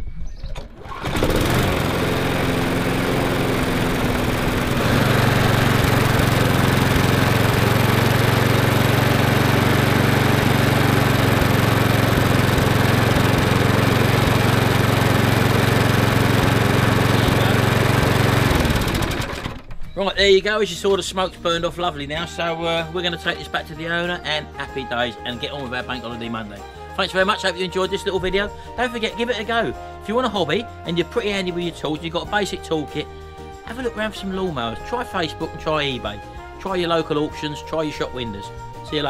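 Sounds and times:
lawnmower engine running: 0:00.6 - 0:19.8.

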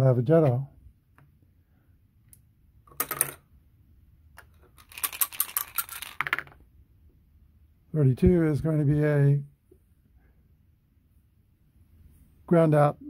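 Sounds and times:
dice rattling on hard surface: 0:04.4 - 0:06.6.

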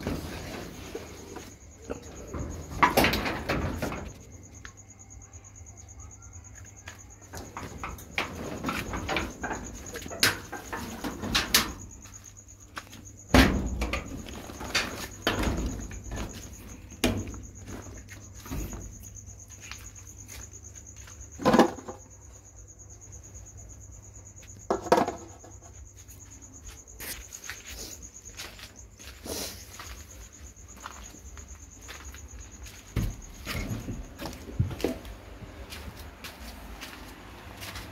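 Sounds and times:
rustles and knocks: 0:00.0 - 0:04.6, 0:07.2 - 0:22.6, 0:29.8 - 0:36.4
night insects chirring: 0:00.0 - 0:37.9.

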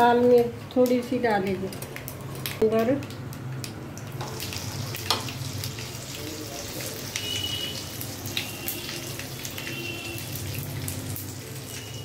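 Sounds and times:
oil sizzling in a frying pan: 0:04.0 - 0:12.0.

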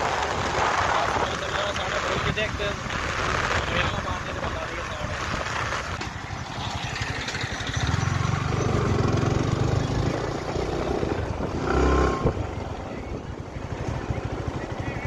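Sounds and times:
wind noise on microphone: 0:00.0 - 0:13.8
motorcycle engine running: 0:00.0 - 0:15.0.

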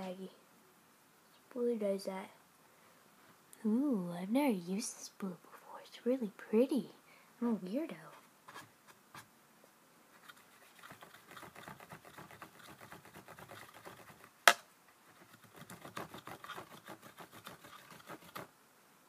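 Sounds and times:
makeup tools clicking and scratching: 0:10.2 - 0:14.3, 0:15.1 - 0:18.5.

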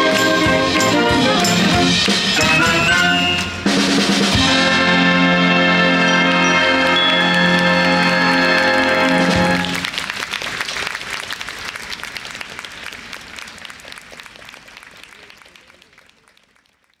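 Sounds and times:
audience applause: 0:00.0 - 0:04.1, 0:06.3 - 0:17.0
wind band chord: 0:00.0 - 0:09.8.

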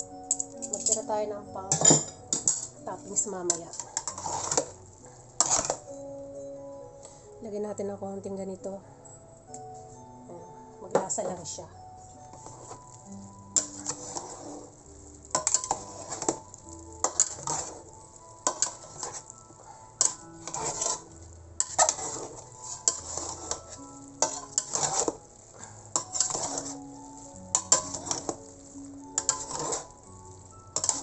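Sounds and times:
tongs and ladle scraping a pot: 0:02.0 - 0:04.8, 0:05.4 - 0:05.9, 0:12.3 - 0:31.0.

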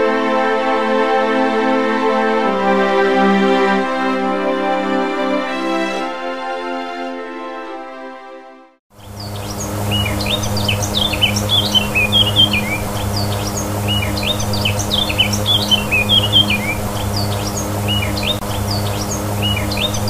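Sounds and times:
songbirds chirping and singing: 0:09.0 - 0:20.0
steady low hum: 0:09.0 - 0:20.0.

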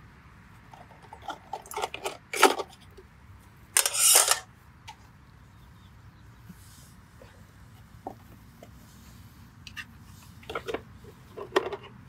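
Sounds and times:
metal clinks and rattles: 0:03.8 - 0:04.4
rustling scrape: 0:03.8 - 0:04.4
sharp metal clatter: 0:03.8 - 0:04.5.

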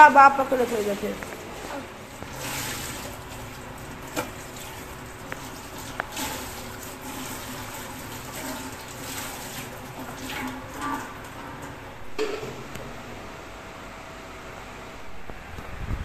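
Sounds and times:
cloth rubbed and wrung in water: 0:00.0 - 0:11.3
tap water running into sink: 0:02.2 - 0:12.6.

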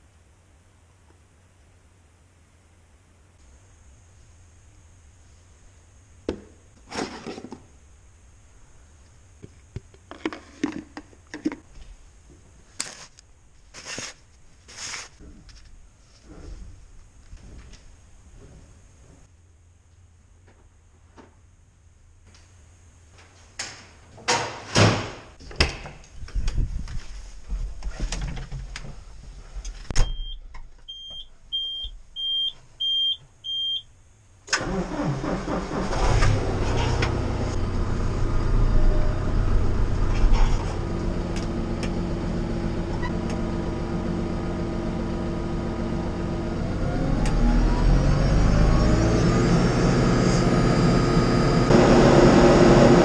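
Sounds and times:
diesel engine cranking and idling: 0:34.5 - 0:53.0.

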